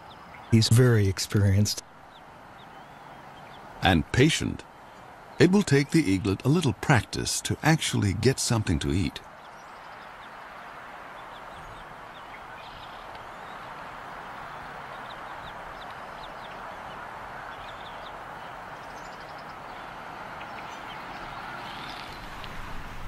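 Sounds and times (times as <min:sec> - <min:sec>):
wind-like hiss: 0:00.0 - 0:23.0
eaglets peeping: 0:02.0 - 0:04.0, 0:09.0 - 0:22.2.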